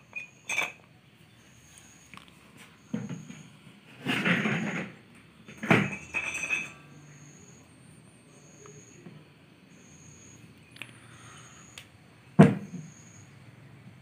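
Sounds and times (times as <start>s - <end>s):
insect chirping: 5.4s - 13.8s.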